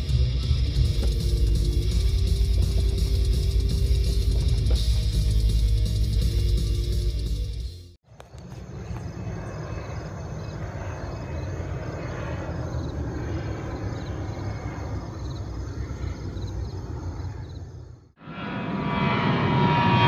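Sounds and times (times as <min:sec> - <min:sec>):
distant jet climbing: 0:08.1 - 0:20.0.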